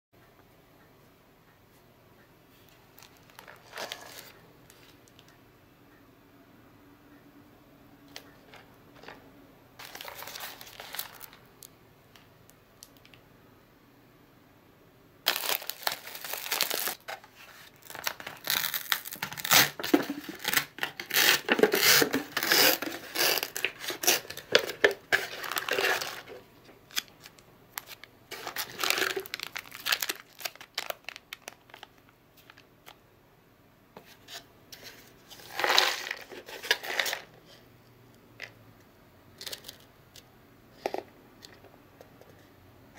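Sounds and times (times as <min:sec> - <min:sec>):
plastic packaging crinkling: 0:02.9 - 0:04.9, 0:09.8 - 0:11.5, 0:15.3 - 0:33.0
foil paper lid peeling: 0:17.9 - 0:26.2.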